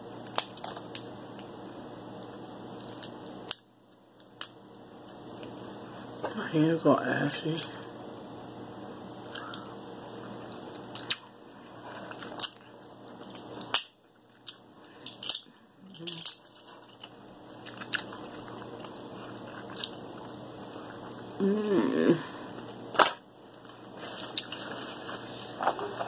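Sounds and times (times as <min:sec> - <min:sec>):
steady low hum: 0:00.0 - 0:26.0
crab shells cracking: 0:00.2 - 0:01.5, 0:13.2 - 0:20.2.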